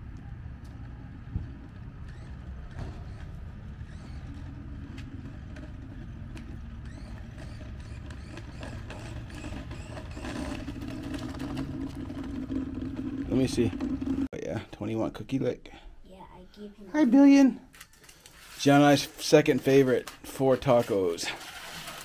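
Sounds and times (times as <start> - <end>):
vehicle engine running: 0.0 - 14.3.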